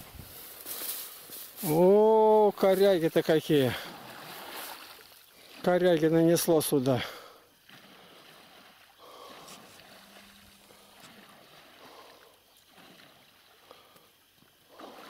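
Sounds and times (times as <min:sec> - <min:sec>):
pond water splashing: 0:00.0 - 0:15.0.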